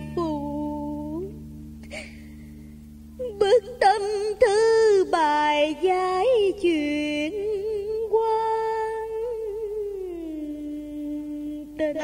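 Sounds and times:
woman singing ornamented vocal line: 0.0 - 1.4, 3.2 - 12.0.

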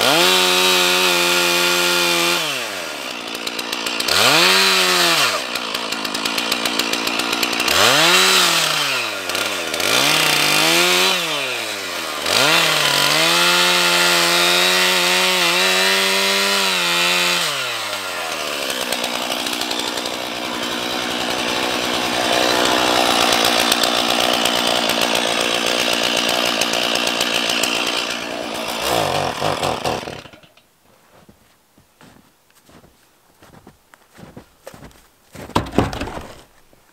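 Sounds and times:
chainsaw revving and cutting: 0.0 - 30.6.

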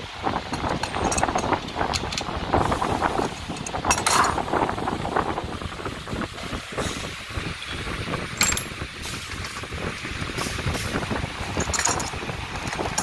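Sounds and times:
workshop background rumble: 0.0 - 13.0
metal clicks and clinks: 0.5 - 2.4, 3.4 - 4.4, 8.4 - 8.8, 11.5 - 13.0.

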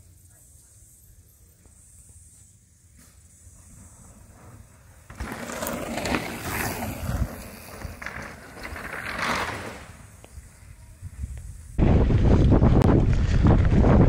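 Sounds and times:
bike tyres rolling on dirt: 0.0 - 14.0
wind on microphone: 6.7 - 8.2, 10.3 - 14.0.

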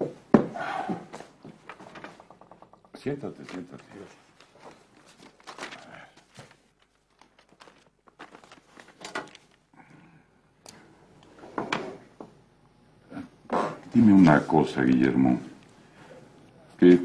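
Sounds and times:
chair being handled: 0.0 - 5.2
papers rustling: 1.2 - 9.7.

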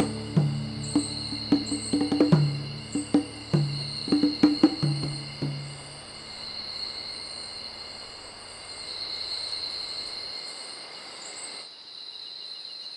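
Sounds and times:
low music drum beat: 0.0 - 6.0
crickets and insects trilling: 0.0 - 12.9.

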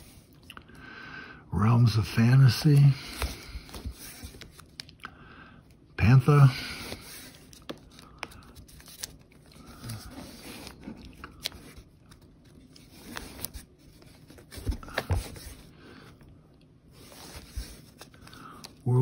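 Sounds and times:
paper rustling and sliding: 2.1 - 4.8, 6.3 - 15.7, 16.9 - 18.4.

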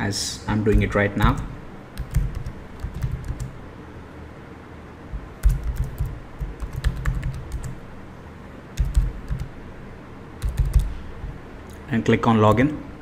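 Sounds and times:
keyboard typing: 0.7 - 3.6, 5.2 - 7.8, 8.8 - 9.6, 10.4 - 11.0.

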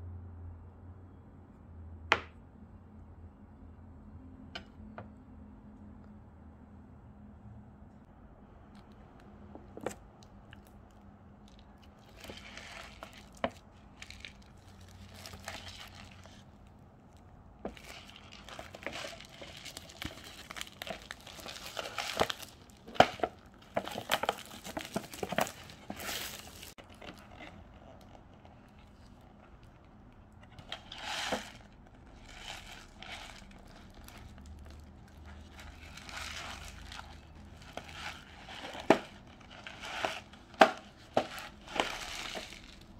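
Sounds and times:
plastic wrap crinkling and tearing: 11.5 - 29.8, 30.6 - 42.9.

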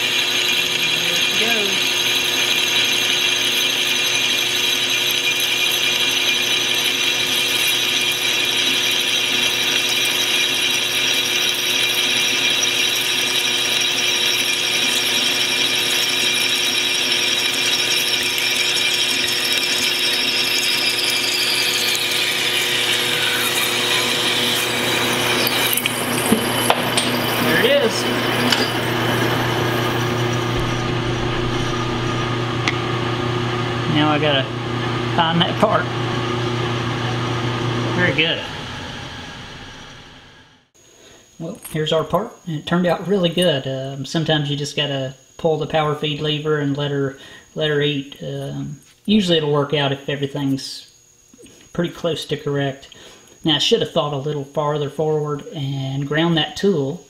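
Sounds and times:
lathe spindle whining: 0.0 - 40.8.

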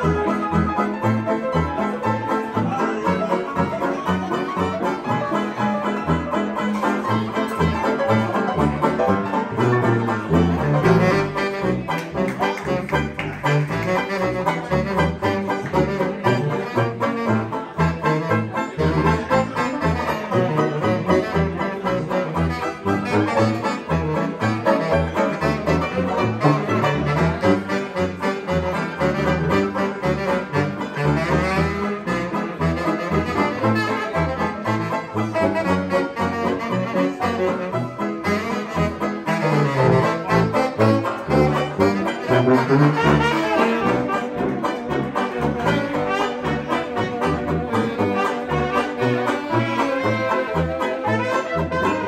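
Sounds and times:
saxophones playing: 0.0 - 52.0
trumpet playing: 0.0 - 52.0
sousaphone bass line: 28.6 - 52.0.

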